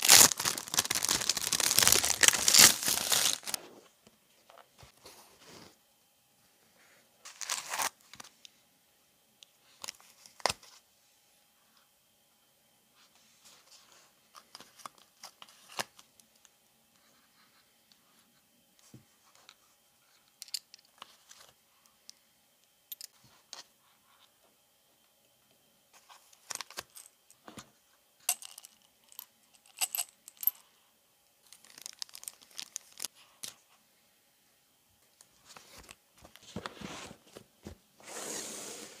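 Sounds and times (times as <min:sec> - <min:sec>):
box lid sliding scrape: 0:36.6 - 0:37.2, 0:38.0 - 0:39.0.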